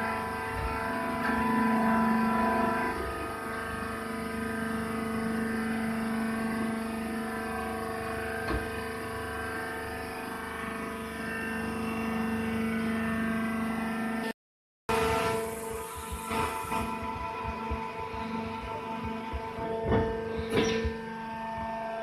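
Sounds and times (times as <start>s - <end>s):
hydraulic power pack humming: 14.9s - 22.0s.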